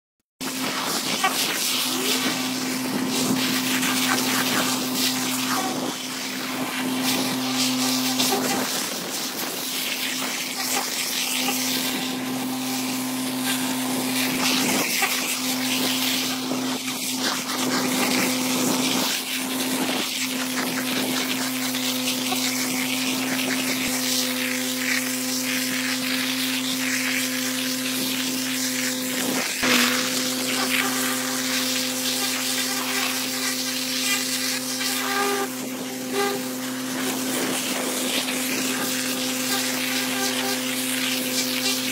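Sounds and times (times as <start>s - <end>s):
grit crackling in hose: 0.4s - 41.9s.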